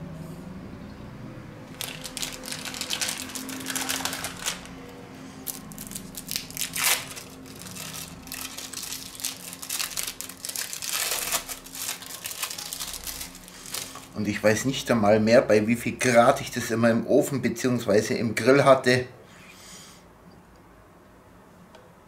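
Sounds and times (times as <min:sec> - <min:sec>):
loud plastic crackle: 0:01.7 - 0:14.2
plastic packaging crinkling: 0:01.7 - 0:14.2.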